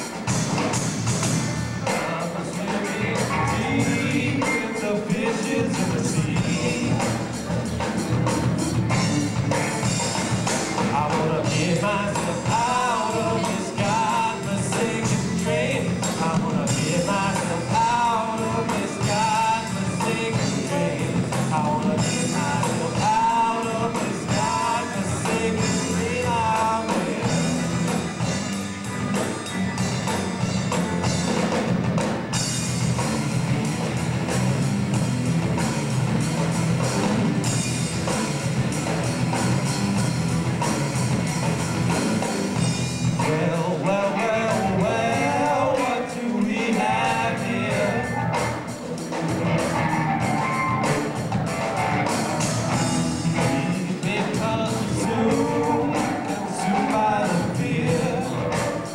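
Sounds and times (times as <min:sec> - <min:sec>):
bass guitar: 0:00.0 - 0:58.9
drum kit: 0:00.0 - 0:58.9
electric guitars: 0:00.0 - 0:58.9
lead vocal singing: 0:01.8 - 0:07.9, 0:08.8 - 0:29.0, 0:42.6 - 0:51.4, 0:52.0 - 0:58.9.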